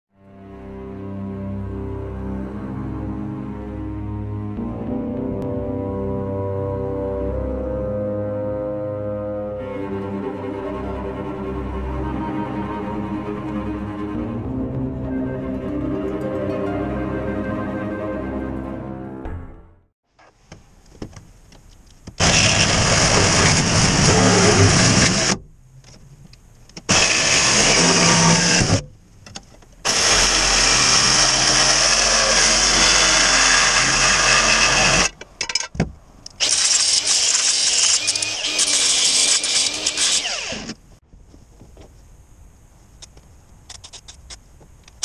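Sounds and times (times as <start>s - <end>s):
cordless power tool running: 22.2s - 25.4s, 26.9s - 28.8s, 29.9s - 35.1s, 36.4s - 40.8s.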